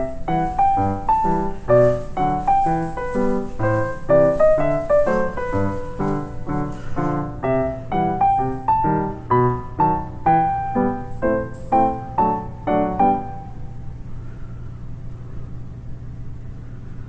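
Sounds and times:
piano music: 0:00.0 - 0:14.4.

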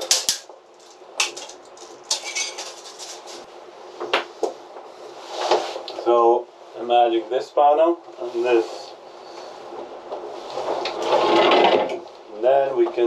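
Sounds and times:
hand tools clicking and knocking: 0:00.0 - 0:03.4
tools scraping: 0:00.0 - 0:03.5, 0:10.4 - 0:12.0.

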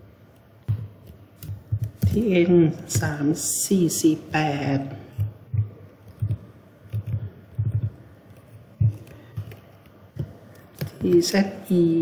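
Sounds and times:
keyboard typing: 0:05.1 - 0:11.4.

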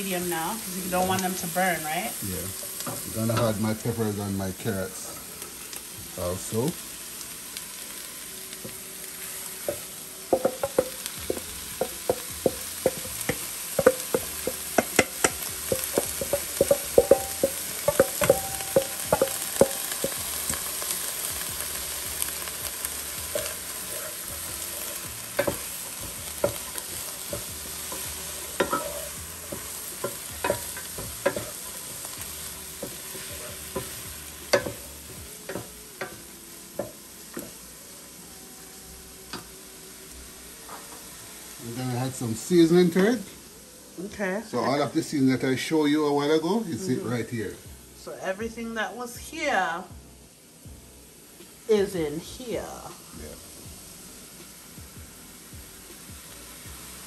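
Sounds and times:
vegetables sizzling in a pan: 0:00.0 - 0:57.0
wooden spoon scraping a pan: 0:23.2 - 0:34.8.

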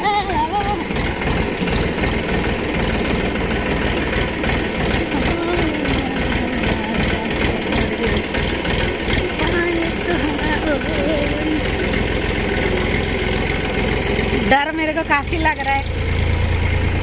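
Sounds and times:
tractor engine running: 0:00.0 - 0:17.0.

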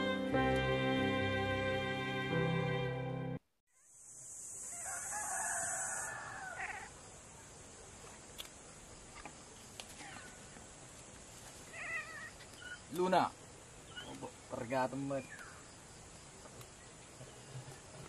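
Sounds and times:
background music: 0:00.0 - 0:03.4
steady high hiss: 0:03.8 - 0:17.2
rooster crowing: 0:04.7 - 0:06.9.

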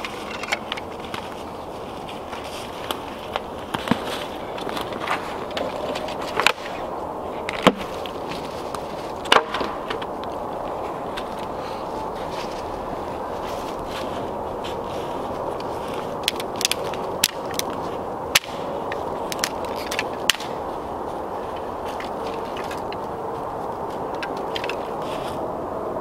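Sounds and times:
campfire crackling: 0:00.0 - 0:25.4
steady low hiss: 0:00.0 - 0:26.0
burning twigs popping and snapping: 0:02.2 - 0:06.8, 0:07.4 - 0:10.6, 0:14.7 - 0:20.7.

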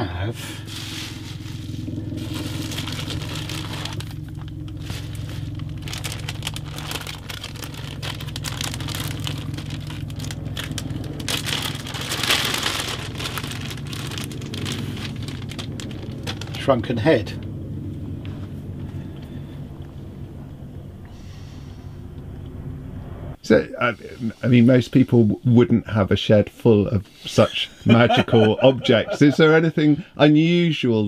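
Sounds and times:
steady low hum: 0:00.0 - 0:30.9
plastic bag crinkling: 0:00.7 - 0:16.8.

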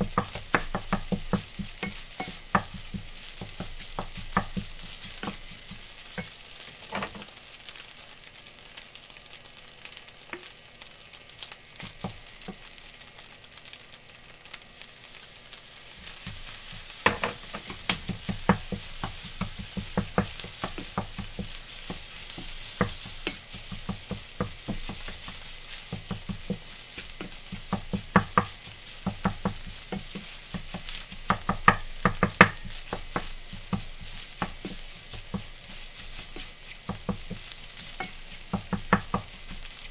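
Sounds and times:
spatula knocking and scraping pan: 0:00.0 - 0:07.3, 0:16.1 - 0:39.9
rice sizzling in a frying pan: 0:00.0 - 0:39.9.

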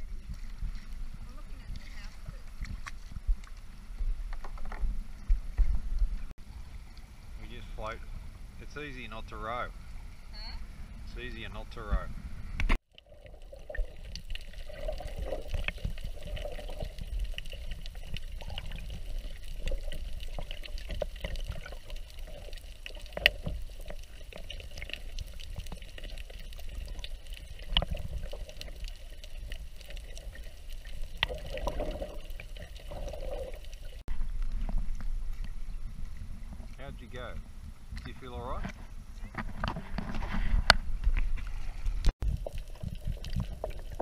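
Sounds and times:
sharp clicks underwater: 0:12.6 - 0:35.6
splash: 0:13.0 - 0:34.0.

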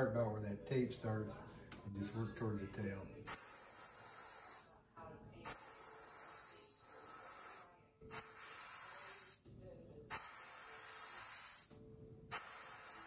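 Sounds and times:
airbrush spraying: 0:03.3 - 0:04.7, 0:05.4 - 0:09.4, 0:10.1 - 0:11.7, 0:12.3 - 0:13.0.

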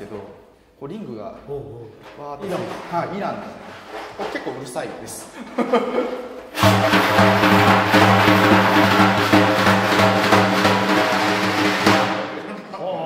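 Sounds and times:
frame drum deep tone: 0:06.5 - 0:12.5.

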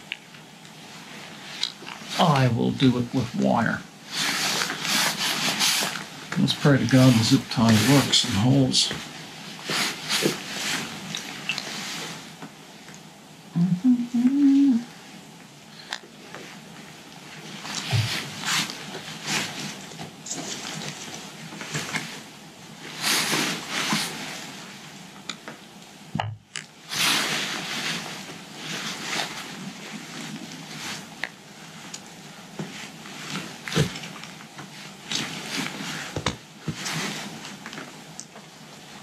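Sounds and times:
nylon straps rustling and scraping: 0:04.1 - 0:08.6, 0:17.4 - 0:22.2.

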